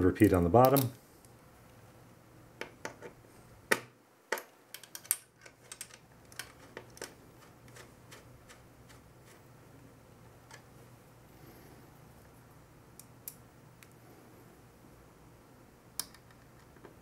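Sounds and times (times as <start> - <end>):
small metal parts clicking: 4.3 - 7.8.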